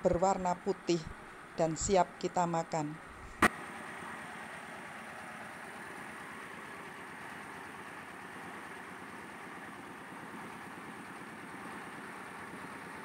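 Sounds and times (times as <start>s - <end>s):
rice mill machinery running: 3.5s - 13.0s.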